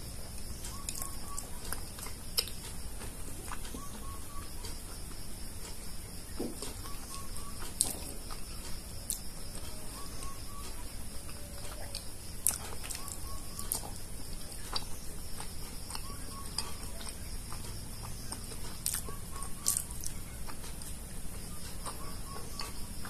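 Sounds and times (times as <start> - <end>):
wet chewing: 0.3 - 5.8, 6.6 - 22.8
lip smacks and clicks: 14.6 - 21.0.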